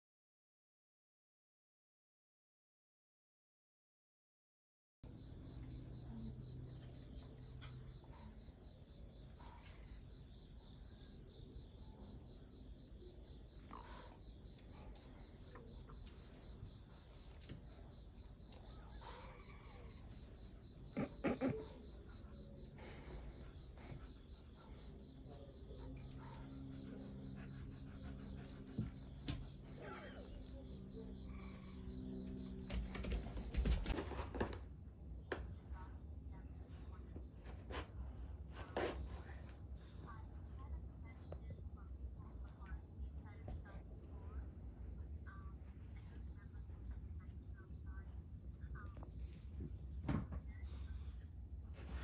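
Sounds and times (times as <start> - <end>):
insects chirring: 5.1 - 34.0.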